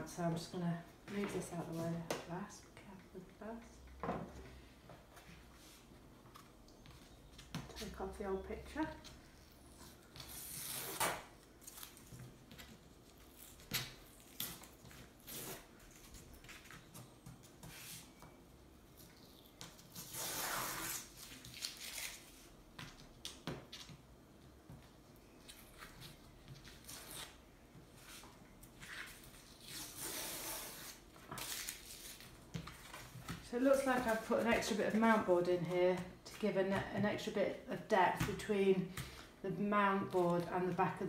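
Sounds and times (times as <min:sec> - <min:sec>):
masking tape peeling off paper: 0:10.2 - 0:12.1, 0:13.1 - 0:16.4, 0:19.0 - 0:22.3, 0:28.8 - 0:32.3.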